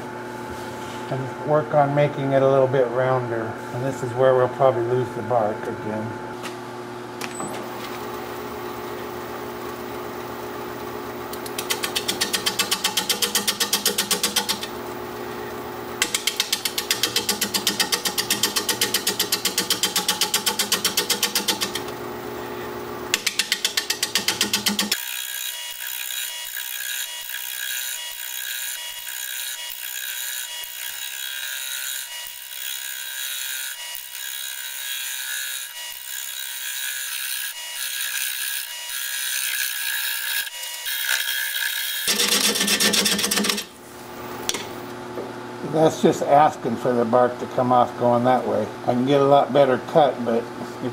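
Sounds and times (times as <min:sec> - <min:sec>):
lathe humming: 0:07.6 - 0:44.4
gouge cutting wood on lathe: 0:11.4 - 0:14.7, 0:16.0 - 0:22.0, 0:23.1 - 0:43.8.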